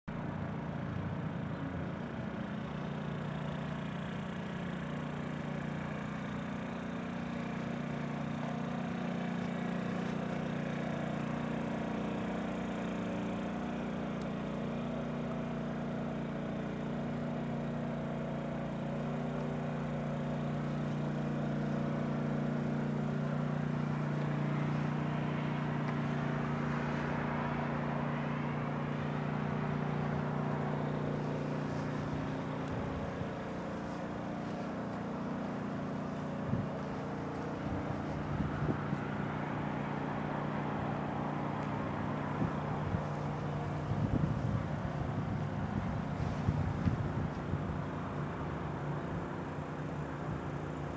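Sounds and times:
engine idling: 0.1 - 50.9.

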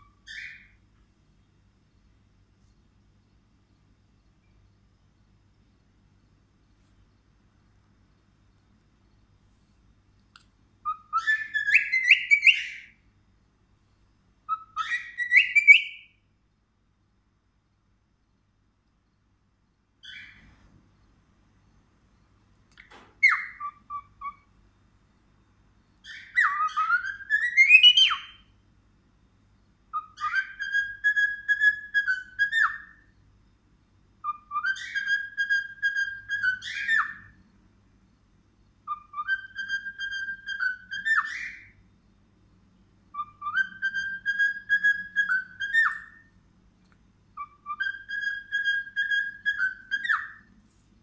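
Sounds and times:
cockatiel singing: 0.0 - 0.8, 10.8 - 13.0, 14.5 - 16.2, 20.0 - 20.4, 22.8 - 24.5, 26.0 - 28.5, 29.9 - 33.2, 34.2 - 37.5, 38.8 - 41.8, 43.1 - 46.3, 47.4 - 50.5.

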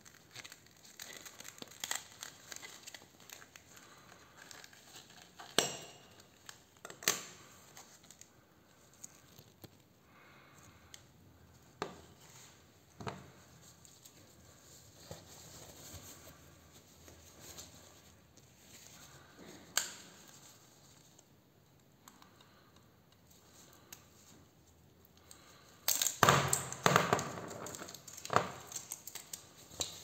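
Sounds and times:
plastic packaging crinkling and tearing: 0.0 - 9.8, 25.3 - 30.0.

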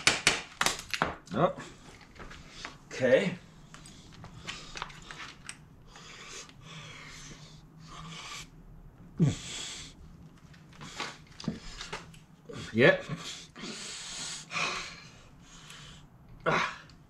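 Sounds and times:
man breathing hard: 5.8 - 8.6, 9.2 - 10.0, 10.8 - 17.0
man grunting: 9.2 - 9.5, 16.4 - 16.9.

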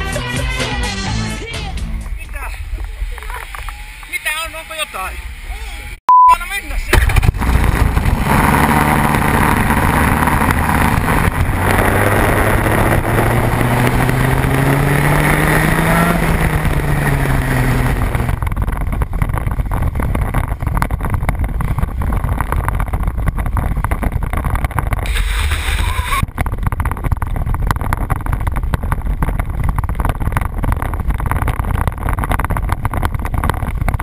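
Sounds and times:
wind noise: 1.9 - 34.0
kart engine running: 6.9 - 34.0
water spray: 25.1 - 26.1.

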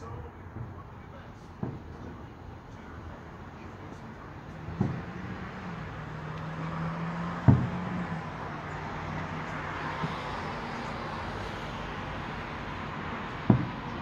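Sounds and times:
low hum of traffic: 0.0 - 14.0
distant firework shells bursting: 1.5 - 3.0, 3.6 - 8.5, 13.0 - 14.0.

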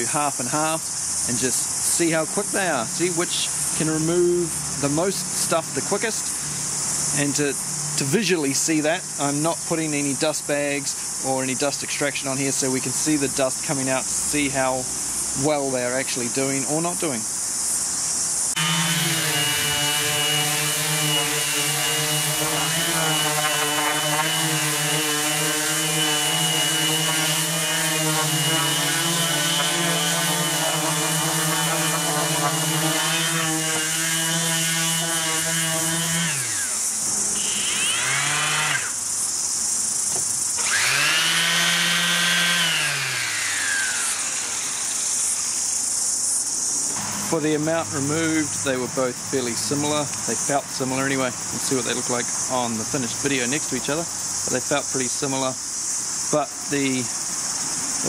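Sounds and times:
orbital sander running: 18.5 - 39.1, 40.2 - 45.8
sandpaper hissing on wood: 18.5 - 46.2.

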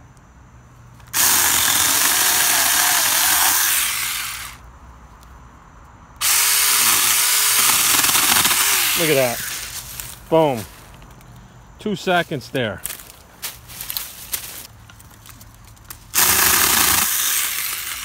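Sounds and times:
electric chainsaw cutting wood: 1.1 - 4.6, 6.2 - 9.7, 16.1 - 18.0.

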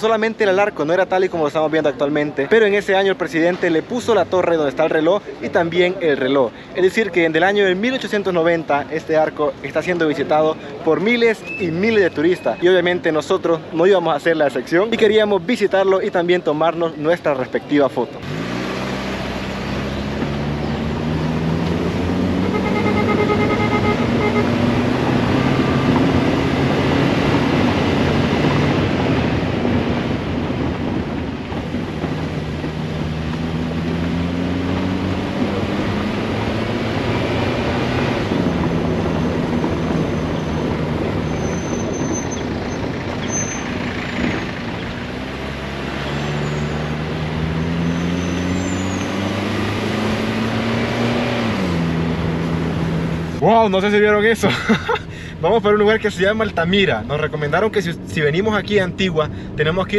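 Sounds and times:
tyres rumbling over cobblestones: 0.0 - 59.9.

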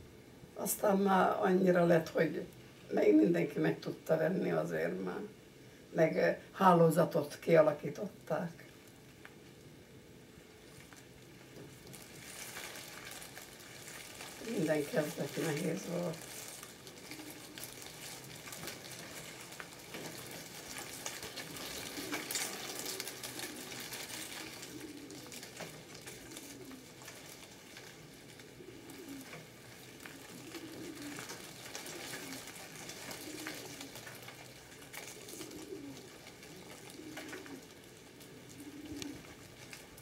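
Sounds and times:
rustle of hands working yarn: 10.4 - 40.0
pigeon cooing: 12.0 - 40.0.

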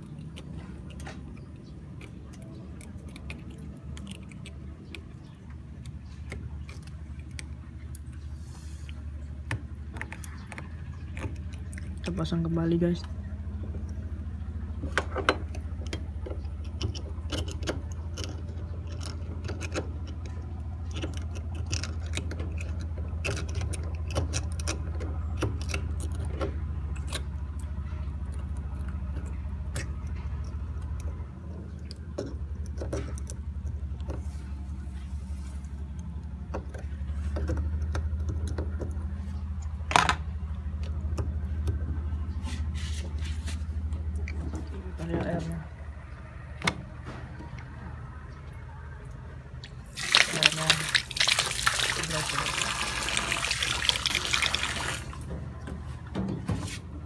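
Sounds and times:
steady low hum: 0.0 - 57.0.

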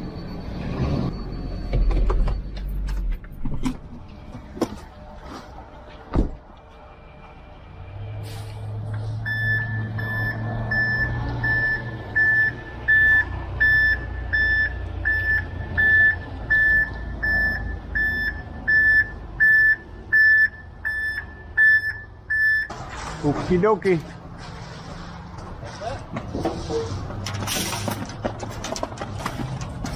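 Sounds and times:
truck reversing alarm beeps: 0.0 - 5.6, 6.6 - 22.8
diesel engine running: 0.0 - 29.9.

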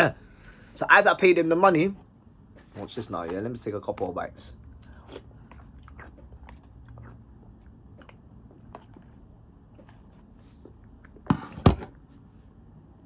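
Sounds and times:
chewing: 2.8 - 11.2.

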